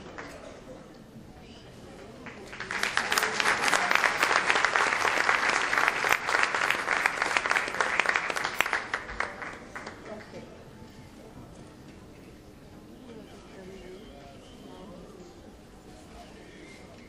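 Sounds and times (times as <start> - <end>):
audience applauding: 2.2 - 10.3.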